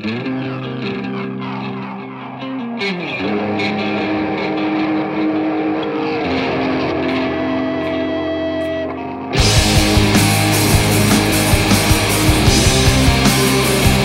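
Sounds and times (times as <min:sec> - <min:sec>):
electric guitars playing rock: 0:00.0 - 0:14.0.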